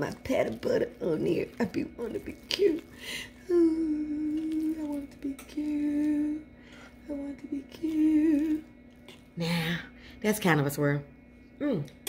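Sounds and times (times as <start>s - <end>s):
woman humming: 1.6s - 10.0s.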